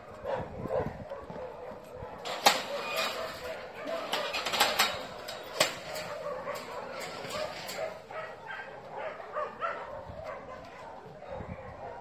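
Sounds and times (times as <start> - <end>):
dog yipping: 6.1 - 12.0.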